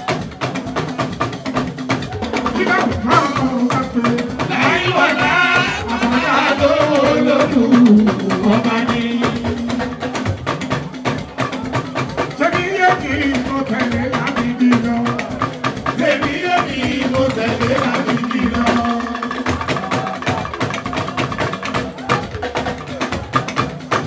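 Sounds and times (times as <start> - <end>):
hand percussion and drums: 0.0 - 24.0
man singing into microphone: 2.5 - 10.0, 12.4 - 19.5.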